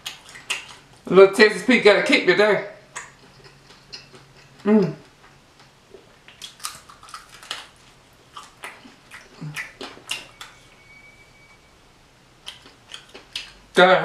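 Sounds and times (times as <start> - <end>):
chewing and lip-smacking: 0.0 - 1.1, 2.9 - 10.6, 12.4 - 13.7.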